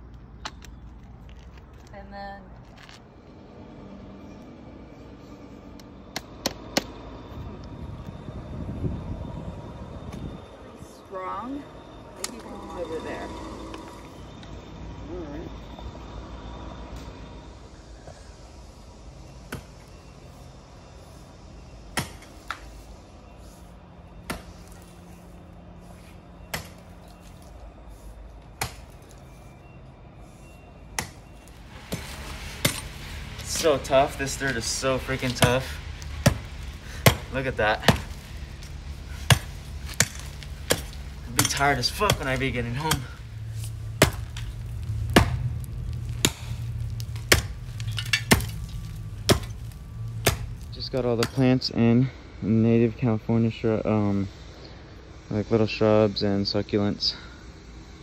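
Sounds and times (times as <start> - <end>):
pick striking hard dirt: 31.8 - 51.6.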